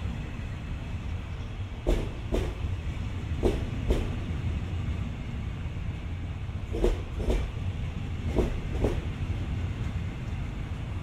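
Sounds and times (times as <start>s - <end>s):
low rumble of train: 0.0s - 11.0s
train wheels clacking over rail joint: 1.8s - 2.7s, 3.4s - 4.2s, 6.7s - 7.6s, 8.2s - 9.1s.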